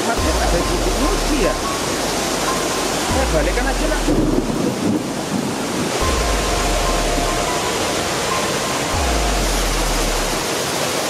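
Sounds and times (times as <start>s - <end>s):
low bass notes: 0.0s - 5.3s, 6.0s - 10.5s
stream water rushing over rocks: 0.0s - 11.0s.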